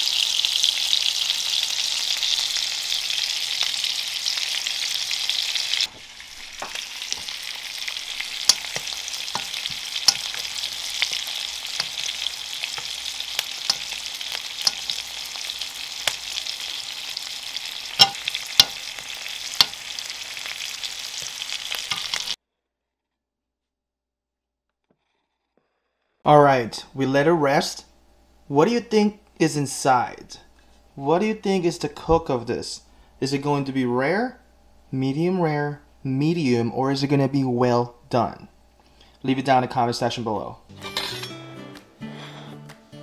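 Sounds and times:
steak sizzling in butter: 0.0s - 22.4s
metal spoon clinking on pan: 8.4s - 10.4s, 13.6s - 14.0s, 14.6s - 15.0s, 18.0s - 18.8s, 41.0s - 41.4s.

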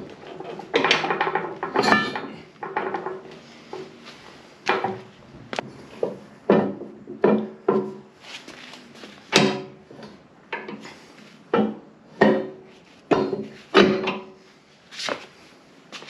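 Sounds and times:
heavy steel parts clanking: 0.0s - 4.0s, 9.2s - 14.4s.

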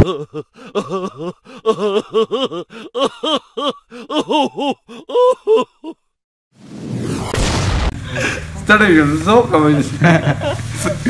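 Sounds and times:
comic pitched yelping cries: 1.0s - 6.0s.

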